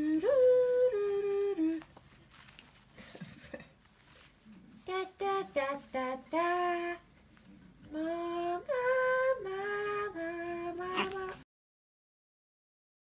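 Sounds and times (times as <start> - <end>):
person humming: 7.9 - 11.4.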